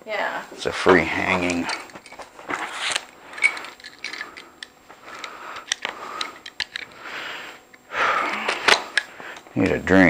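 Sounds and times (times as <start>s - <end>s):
cardboard packaging rustling: 1.2s - 4.3s.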